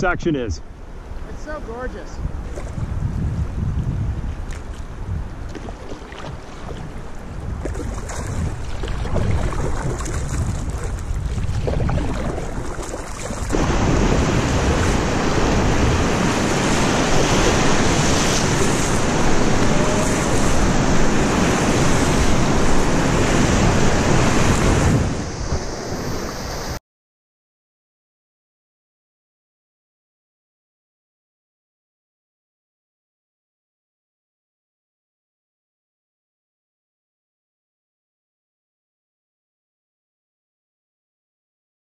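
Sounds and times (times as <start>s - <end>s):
wind on microphone: 2.0s - 26.8s
water washing around canoe: 4.5s - 26.8s
whitewater rapids rushing: 12.5s - 26.4s.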